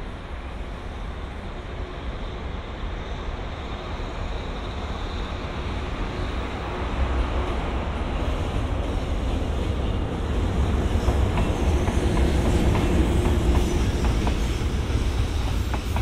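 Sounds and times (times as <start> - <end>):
freight train rumble: 0.0 - 16.0.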